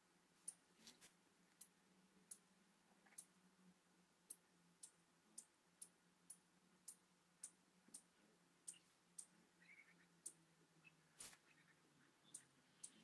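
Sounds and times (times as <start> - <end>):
faint steady hum: 0.0 - 13.0
faint sharp clicks: 0.4 - 3.4, 4.2 - 10.4.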